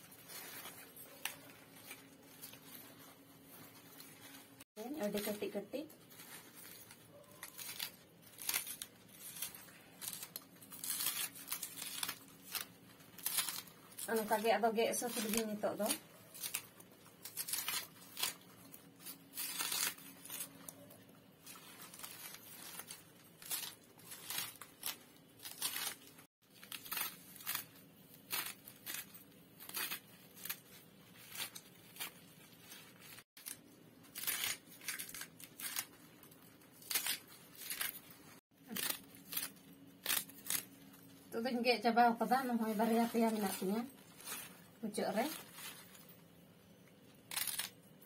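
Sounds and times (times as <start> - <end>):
leaves being snipped and torn: 0.1 - 3.1, 6.2 - 41.1, 47.3 - 47.8.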